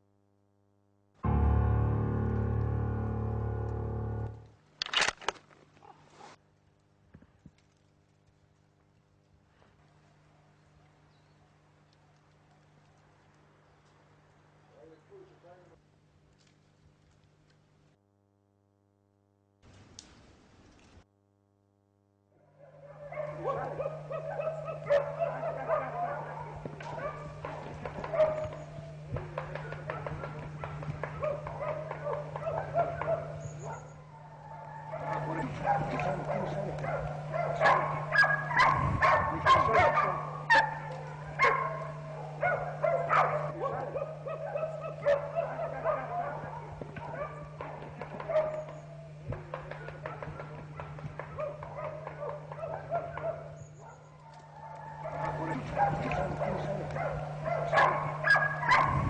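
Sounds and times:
hounds baying: 22.4 - 59.0.

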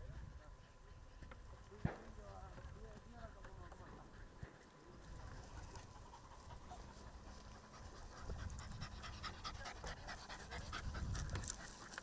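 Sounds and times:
dog panting: 3.2 - 12.0.

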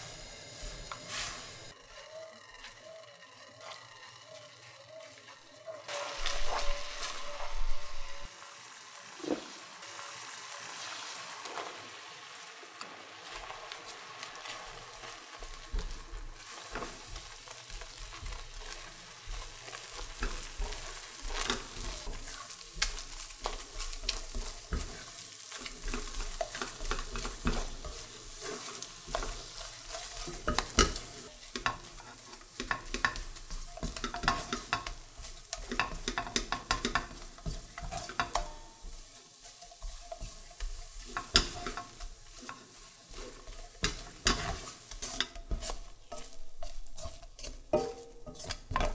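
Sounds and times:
dough sizzling in a pan: 0.0 - 48.9
spatula scraping a metal pan: 5.1 - 8.3, 14.4 - 48.9.

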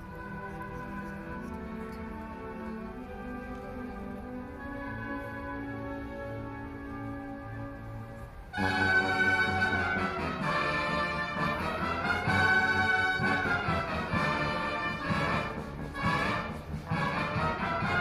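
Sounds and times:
concert band playing brass chords: 0.0 - 18.0.

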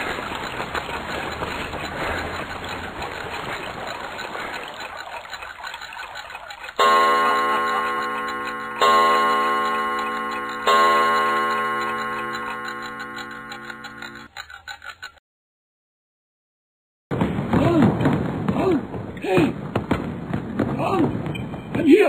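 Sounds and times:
clock chime striking: 6.8 - 14.3.

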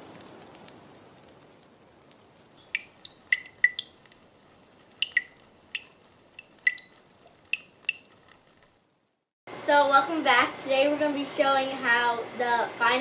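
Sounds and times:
water drops plinking: 2.6 - 8.7.

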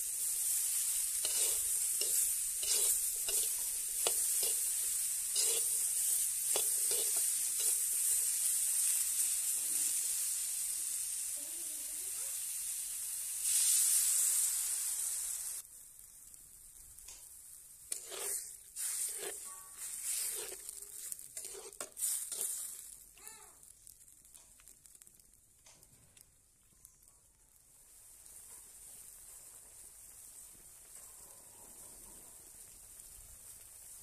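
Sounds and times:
wooden spatula stirring in wok: 0.0 - 10.3, 17.7 - 25.1
vegetables sizzling in oil: 0.0 - 34.0
water hissing in hot pan: 0.0 - 34.0.

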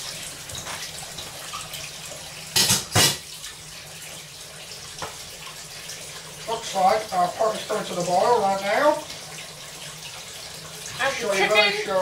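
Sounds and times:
water running in kitchen: 0.0 - 12.0.

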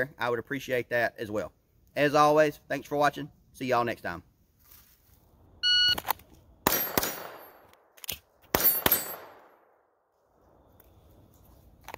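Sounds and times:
short electronic beep: 5.6 - 6.0
handgun shots with echo: 6.7 - 7.6, 8.5 - 9.5.

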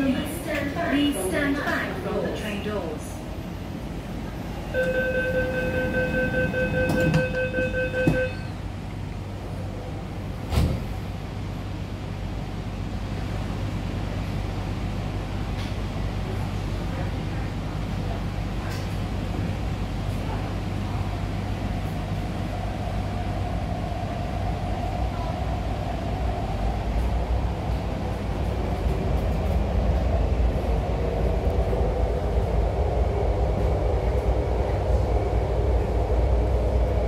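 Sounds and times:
train running hum and rumble: 0.0 - 37.0
door-closing warning tone: 4.8 - 8.6
sliding doors knocking shut: 10.5 - 10.9.

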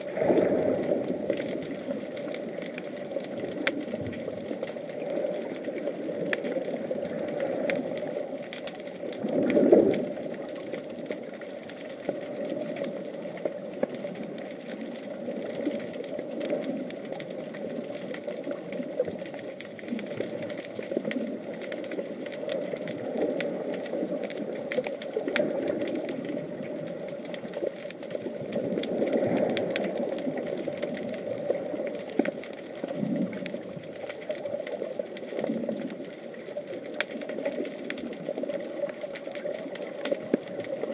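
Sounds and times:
faint crackling clicks: 0.0 - 40.9
low underwater rush: 0.0 - 40.9.

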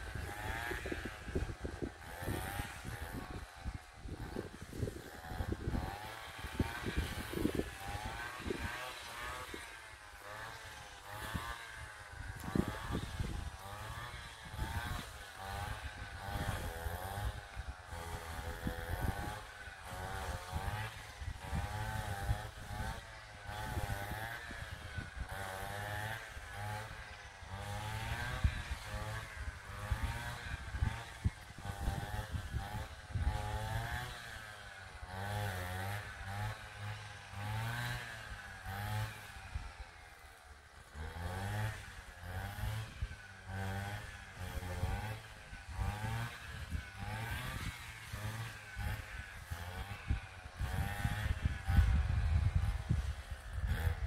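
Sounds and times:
wind buffeting microphone: 0.0 - 9.6, 10.7 - 26.8, 27.6 - 34.1, 42.7 - 54.0
small engine running: 0.0 - 54.0.

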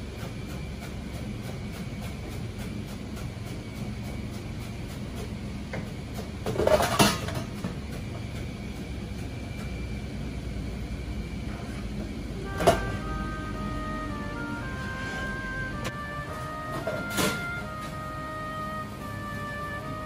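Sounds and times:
low rumble of kitchen equipment: 0.0 - 20.0
bowls and utensils clattering: 6.5 - 7.7.

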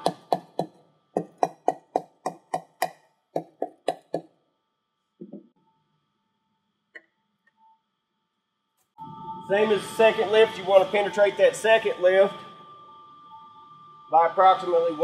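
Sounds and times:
mallet knocking on metal bowl: 0.0 - 4.2.

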